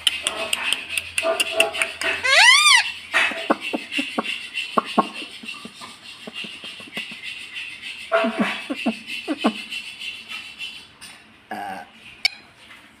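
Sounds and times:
parakeet squeaks: 0:02.1 - 0:03.0.

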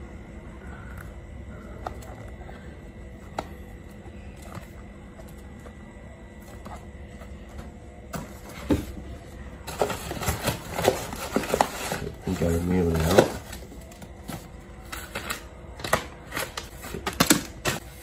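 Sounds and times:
cardboard carton crackling and rustling: 0:06.3 - 0:18.0.

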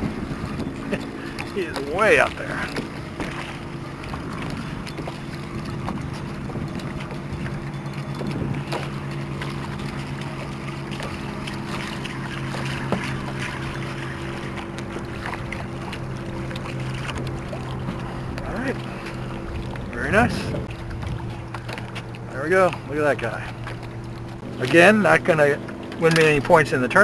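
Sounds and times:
wind on microphone: 0:00.0 - 0:01.5, 0:04.0 - 0:09.1, 0:19.3 - 0:21.6
small boat motor humming: 0:00.0 - 0:27.0.

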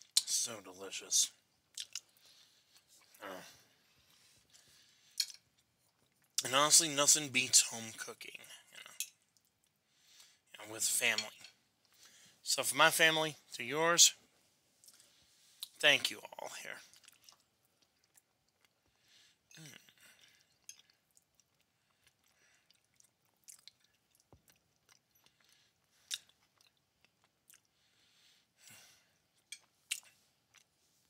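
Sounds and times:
faint chewing of food: 0:01.3 - 0:06.5, 0:08.4 - 0:10.6, 0:11.4 - 0:12.4, 0:14.3 - 0:31.0
mouth clicks and smacks: 0:01.7 - 0:02.1, 0:29.9 - 0:30.2.

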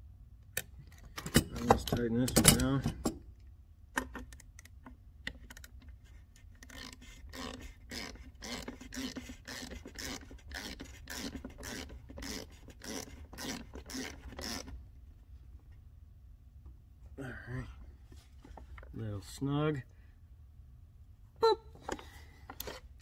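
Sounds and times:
ratchet wrench clicking: 0:06.6 - 0:14.7.

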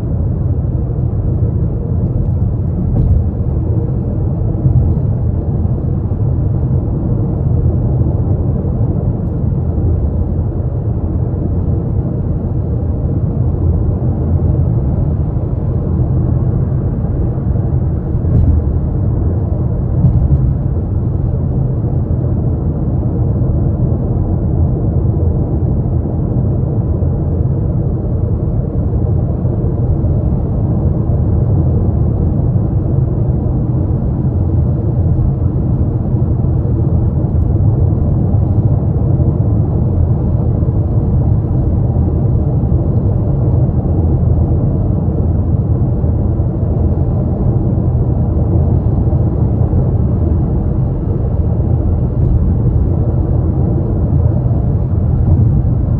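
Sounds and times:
car cabin road noise: 0:00.1 - 0:06.2, 0:16.7 - 0:21.8, 0:48.7 - 0:55.9.

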